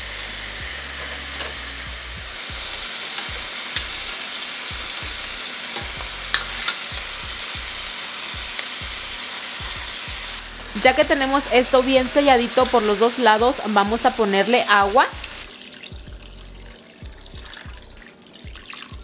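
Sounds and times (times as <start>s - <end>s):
chicken sizzling in hot oil: 0.0s - 19.0s
metal tongs clicking on pan: 2.6s - 4.1s, 5.8s - 7.0s.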